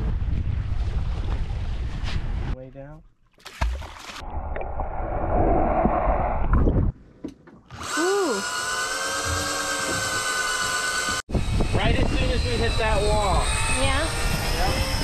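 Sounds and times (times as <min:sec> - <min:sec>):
fishing reel motor whine: 0:07.8 - 0:15.0.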